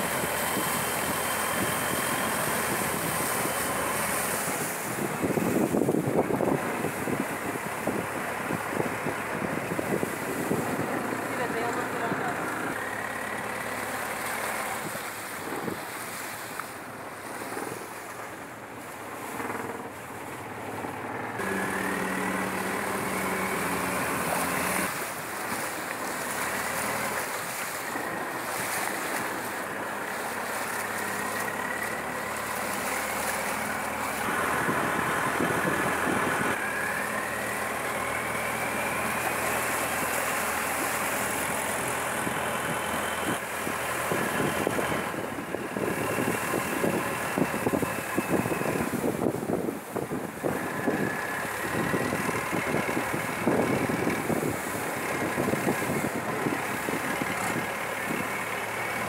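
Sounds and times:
wind noise on microphone: 0.0s - 12.3s, 14.5s - 16.2s, 34.2s - 40.0s, 40.6s - 59.0s
boat engine with whine: 0.0s - 59.0s.

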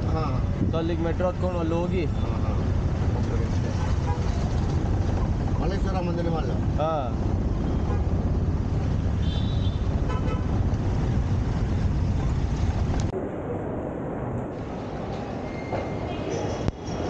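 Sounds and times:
auto-rickshaw engine: 0.0s - 13.1s
city traffic noise: 0.0s - 17.0s
vehicle horn toot: 9.2s - 10.5s.

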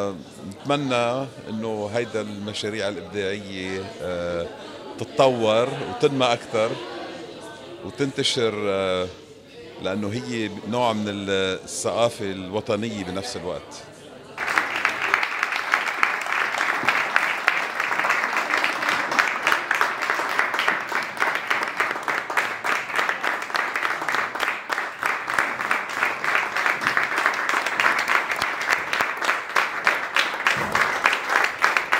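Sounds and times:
audience applause: 14.4s - 31.9s.

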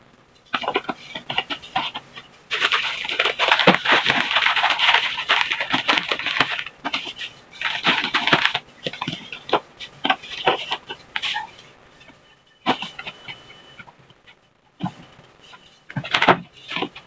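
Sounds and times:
crackers crushed in wrapper: 2.5s - 7.0s.

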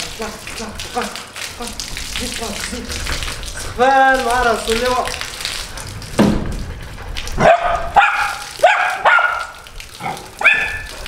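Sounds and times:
garden hose water splashing: 0.0s - 11.0s
dog barking: 7.4s - 10.9s.

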